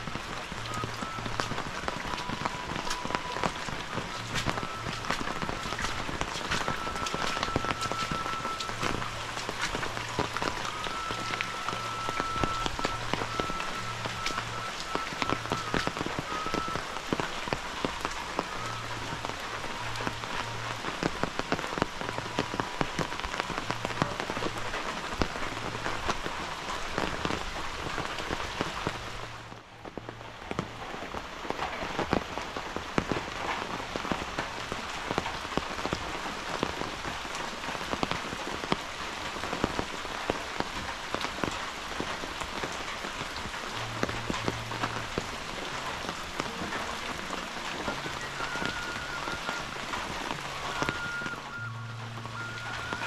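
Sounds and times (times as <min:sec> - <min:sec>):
heavy rain: 0:00.0 - 0:53.0.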